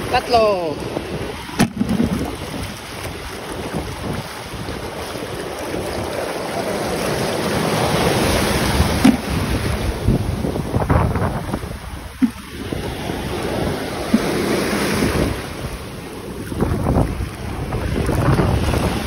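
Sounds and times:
surf washing on beach: 0:00.0 - 0:19.0
wind buffeting microphone: 0:00.0 - 0:19.0.

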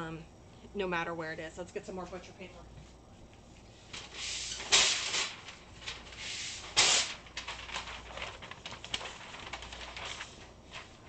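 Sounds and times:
paper rustling and crinkling: 0:03.9 - 0:11.0.

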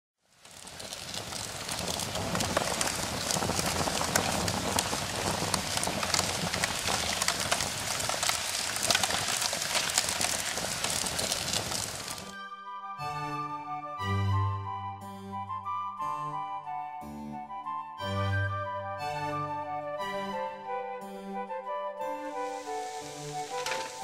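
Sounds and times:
large fire crackling and popping: 0:00.2 - 0:12.4, 0:22.1 - 0:24.0.

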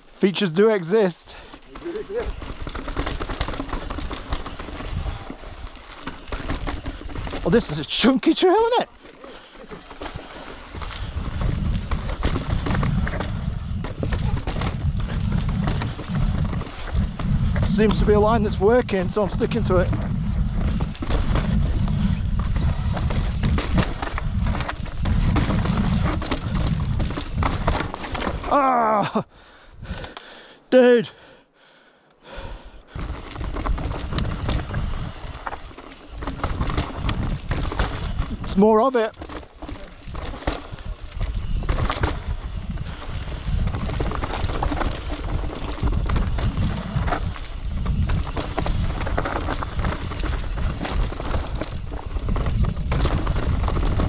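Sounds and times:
bike tyres knocking on rocks: 0:01.8 - 0:08.1, 0:09.7 - 0:28.5, 0:33.0 - 0:54.0
wind on microphone: 0:10.8 - 0:27.9, 0:33.0 - 0:35.5, 0:40.1 - 0:54.0.

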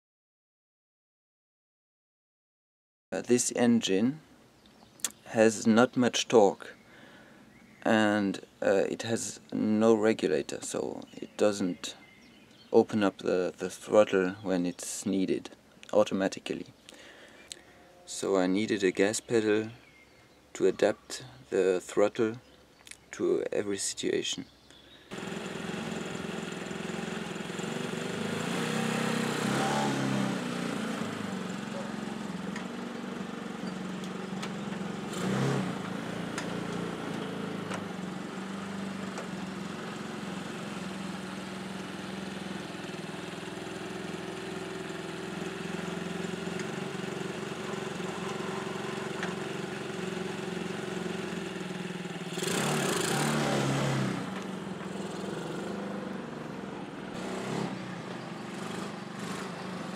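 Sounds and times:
motorcycle engine revving: 0:25.1 - 0:59.9.

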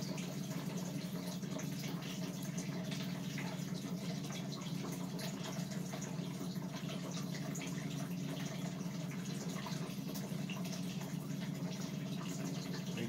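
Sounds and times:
electric fan humming: 0:09.2 - 0:13.0.

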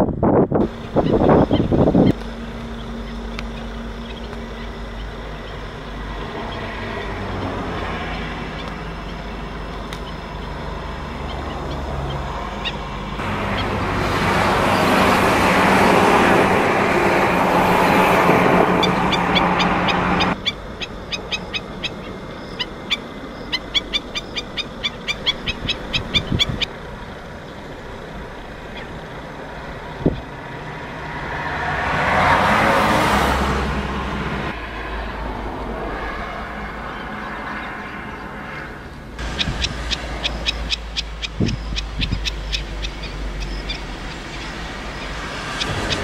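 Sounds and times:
low hum: 0:00.1 - 0:32.3
loud steady rush: 0:00.2 - 0:46.0.

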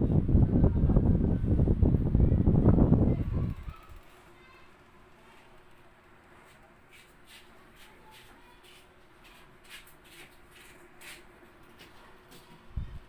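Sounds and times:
faint rustling scrapes: 0:06.3 - 0:12.0.

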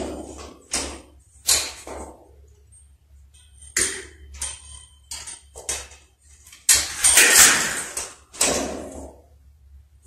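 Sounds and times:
low steady hum: 0:00.0 - 0:10.0
wire scraping through conduit: 0:02.7 - 0:09.2.

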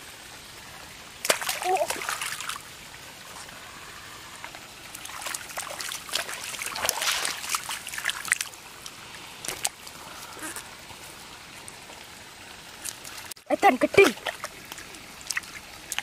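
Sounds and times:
water trickling: 0:00.0 - 0:16.0
hands splashing in muddy water: 0:01.2 - 0:02.6, 0:05.0 - 0:08.5.

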